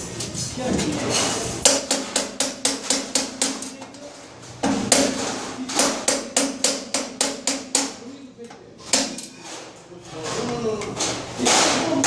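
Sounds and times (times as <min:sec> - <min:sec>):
hand tool striking metal: 0:01.6 - 0:03.8.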